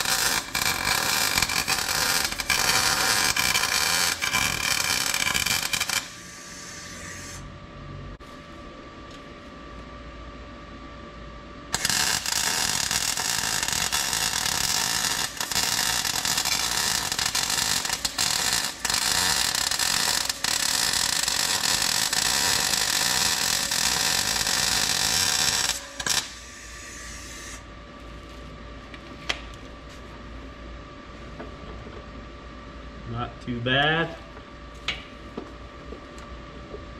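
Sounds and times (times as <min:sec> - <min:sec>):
welding arc crackling and hissing: 0:00.0 - 0:07.4, 0:11.7 - 0:27.6.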